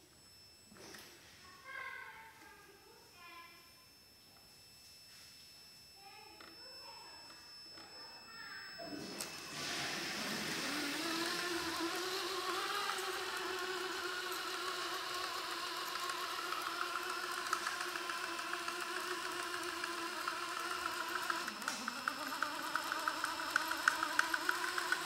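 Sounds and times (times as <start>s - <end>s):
toy truck motor whirring: 7.2s - 25.0s.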